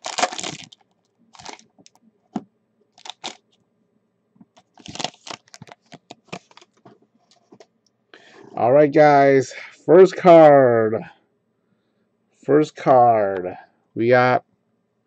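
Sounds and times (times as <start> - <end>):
foil wrapper crinkling: 0.0 - 2.0, 2.9 - 3.4, 4.5 - 7.6.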